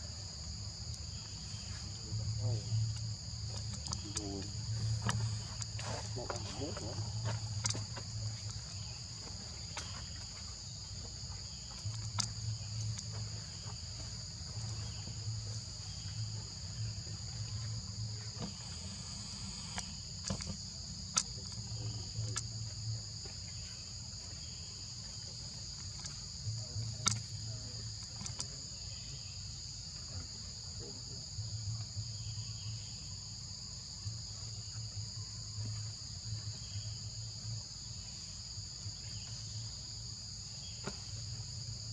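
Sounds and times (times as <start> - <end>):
insect chorus shrill drone: 0.0 - 41.9.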